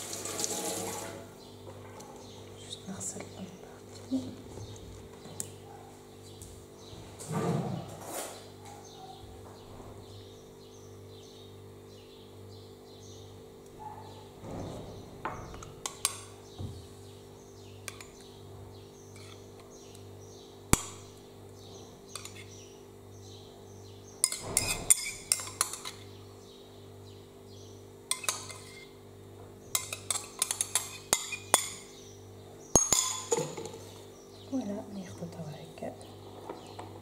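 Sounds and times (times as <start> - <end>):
metal spoon clinking on glass bowl: 29.7 - 31.8, 32.8 - 33.8.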